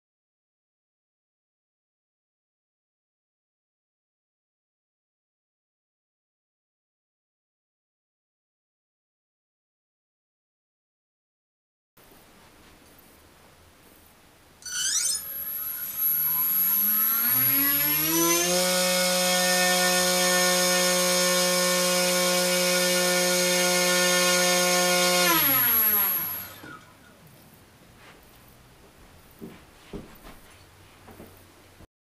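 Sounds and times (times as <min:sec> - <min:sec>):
motor start chirp: 0:14.6 - 0:19.2, 0:25.3 - 0:27.2
brushless motor whine: 0:14.6 - 0:27.0.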